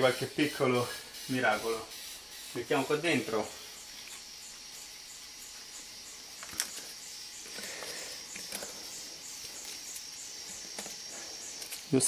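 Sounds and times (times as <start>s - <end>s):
insects chirring: 0.0s - 12.0s
dry twigs rustling: 6.4s - 12.0s.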